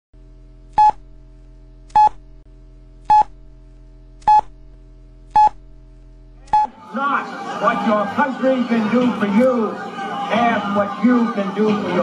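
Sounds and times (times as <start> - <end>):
steady low hum: 0.2 - 11.2
short electronic beeps: 0.7 - 1.0, 1.9 - 2.2, 3.1 - 3.4, 4.2 - 4.6, 5.3 - 5.6, 6.5 - 6.7.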